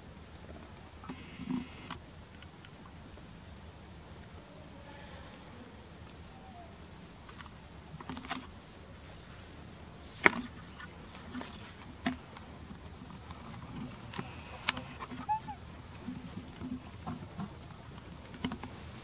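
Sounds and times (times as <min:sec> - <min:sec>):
forest ambience: 0:00.0 - 0:19.0.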